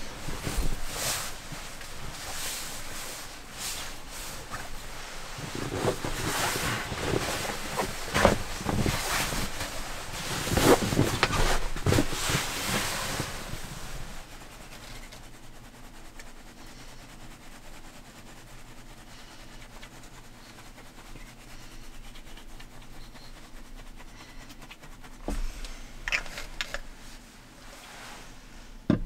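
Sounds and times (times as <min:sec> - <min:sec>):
bedding fabric rustling: 0:00.0 - 0:29.0.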